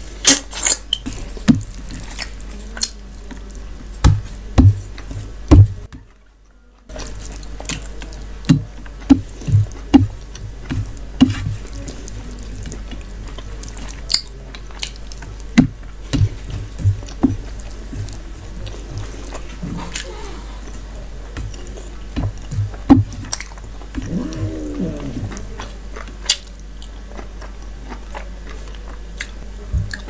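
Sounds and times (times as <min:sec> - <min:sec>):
fingers mixing rice squelching: 0:06.9 - 0:29.4
close-up chewing: 0:06.9 - 0:30.0.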